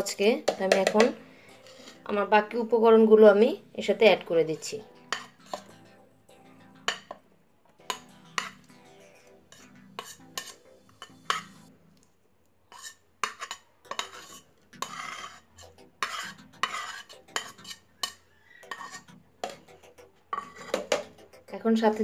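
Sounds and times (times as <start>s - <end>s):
spoon scraping plastic: 0.6s - 2.1s, 4.5s - 5.7s, 9.5s - 11.5s, 12.7s - 21.1s.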